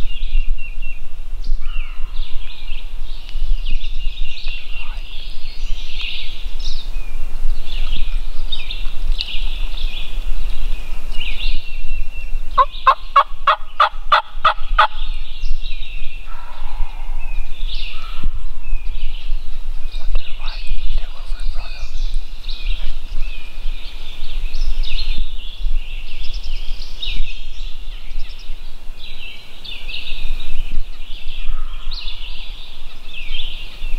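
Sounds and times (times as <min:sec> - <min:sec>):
songbirds singing: 0:00.0 - 0:33.9
turkey gobbling: 0:12.6 - 0:15.0.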